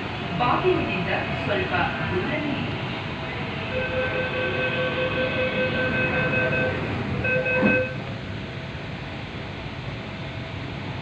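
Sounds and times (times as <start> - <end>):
train carriage rumble: 0.0 - 11.0
electronic tone: 5.6 - 8.0.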